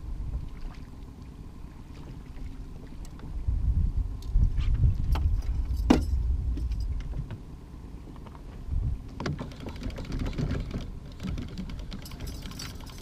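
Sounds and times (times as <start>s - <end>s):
wind rumble on microphone: 0.0s - 13.0s
knocks and clatter in metal boat: 5.1s - 7.5s, 9.1s - 13.0s.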